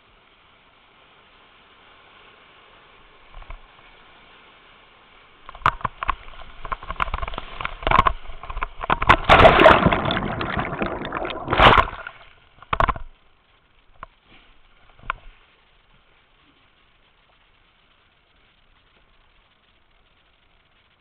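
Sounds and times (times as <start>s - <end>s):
faint hiss: 0.0s - 21.0s
whitewater churning and splashing: 8.9s - 12.3s.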